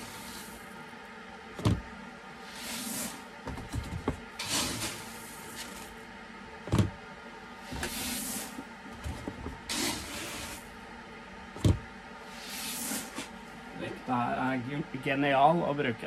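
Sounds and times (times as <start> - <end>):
grain pouring hiss: 0.0 - 0.7, 2.4 - 3.3, 4.4 - 6.0, 7.6 - 8.7, 9.7 - 10.8, 12.3 - 13.3.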